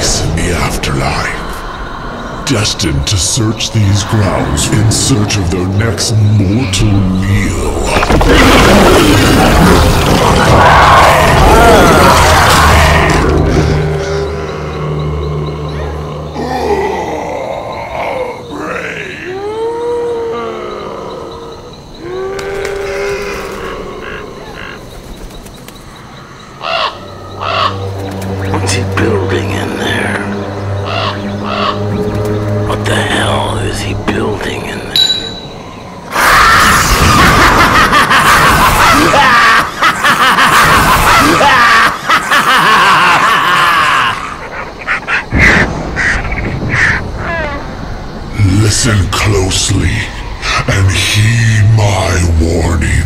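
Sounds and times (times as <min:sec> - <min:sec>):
horror music: 0:00.0 - 0:53.0
screams: 0:07.2 - 0:25.1, 0:35.9 - 0:51.2
monster groan: 0:07.6 - 0:24.6
wild laughter: 0:08.1 - 0:21.4, 0:36.1 - 0:47.8
short raspy calls: 0:26.6 - 0:27.9.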